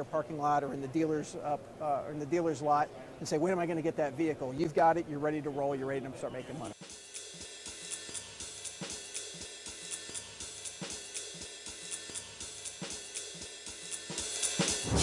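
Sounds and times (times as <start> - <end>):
drum kit beat: 6.8 - 15.0
hi-hat and cymbal strokes: 6.8 - 15.0.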